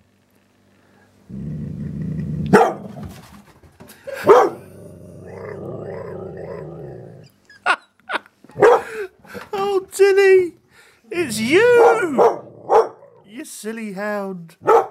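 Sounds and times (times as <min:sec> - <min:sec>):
dog growling: 0:01.3 - 0:03.1, 0:04.1 - 0:07.3, 0:11.2 - 0:13.3
dog grumbling: 0:01.3 - 0:03.1, 0:04.1 - 0:07.3, 0:11.2 - 0:13.3
dog barking: 0:02.5 - 0:03.0, 0:04.1 - 0:04.7, 0:08.5 - 0:09.0, 0:11.7 - 0:13.2, 0:14.6 - 0:14.9.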